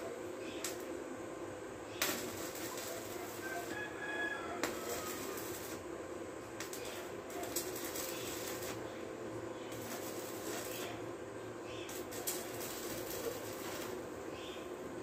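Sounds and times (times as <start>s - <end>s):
welding arc crackling and hissing: 0.0s - 1.0s, 1.8s - 15.0s.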